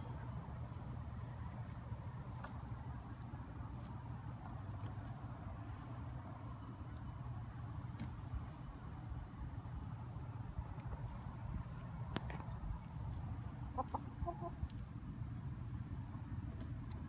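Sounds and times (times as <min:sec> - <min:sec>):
pecking clicks in soil: 0:07.7 - 0:09.0, 0:14.6 - 0:15.0, 0:16.4 - 0:17.0
hens clucking: 0:13.6 - 0:15.0.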